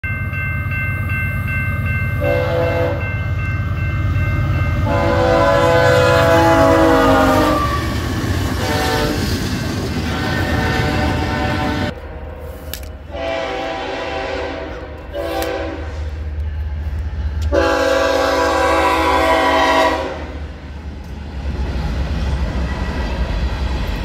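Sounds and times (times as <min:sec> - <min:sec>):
crossing bell ringing: 0:00.0 - 0:09.3
freight train rumbling: 0:00.1 - 0:24.0
locomotive air horn blasts: 0:02.2 - 0:03.0, 0:04.8 - 0:08.0, 0:08.6 - 0:09.3, 0:10.0 - 0:16.2, 0:17.5 - 0:20.4.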